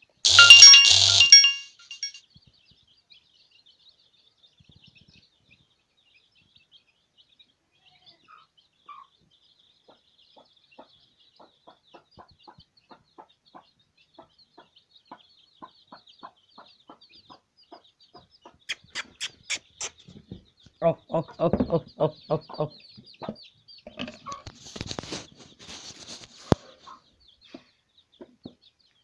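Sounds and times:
chicks peeping: 0:00.9 - 0:29.0
hen clucking: 0:09.9 - 0:27.6.

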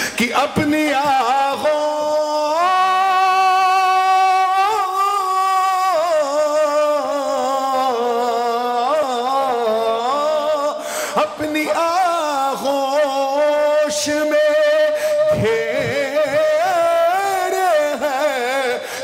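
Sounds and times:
singer breathing: 0:00.0 - 0:00.2, 0:10.8 - 0:11.3, 0:14.9 - 0:15.3, 0:18.7 - 0:19.0
man singing solo: 0:00.0 - 0:19.0.

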